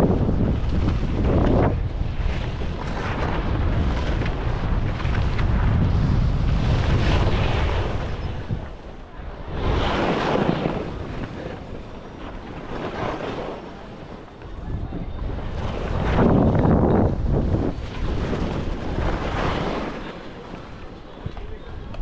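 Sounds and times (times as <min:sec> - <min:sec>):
wind buffeting microphone: 0:00.0 - 0:22.0
skis scraping on snow: 0:00.1 - 0:08.4, 0:09.6 - 0:11.7.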